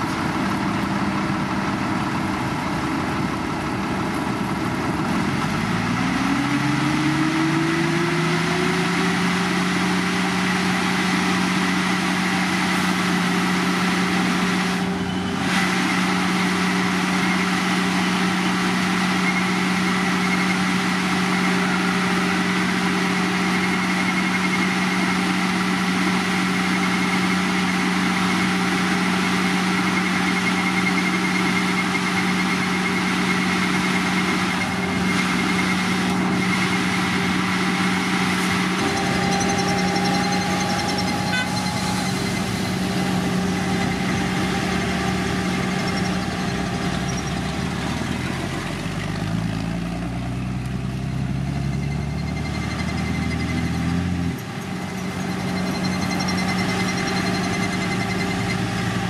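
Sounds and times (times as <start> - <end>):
diesel engine humming: 0.0 - 59.0
lower engine note changing pitch: 33.3 - 53.9.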